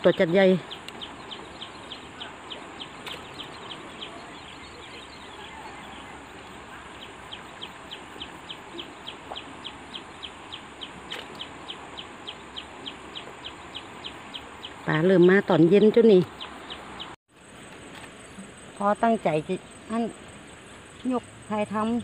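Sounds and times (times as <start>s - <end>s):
bird chirping: 0.0s - 17.2s.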